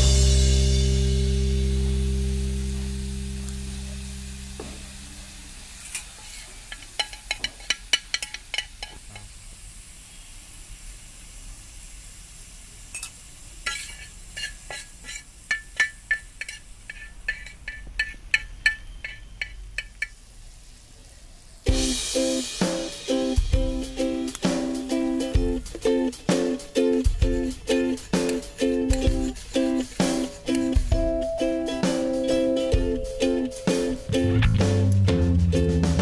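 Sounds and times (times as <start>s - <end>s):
faint frying sizzle: 0.0s - 36.0s
spatula clinking on iron pan: 6.7s - 9.2s, 12.9s - 20.2s.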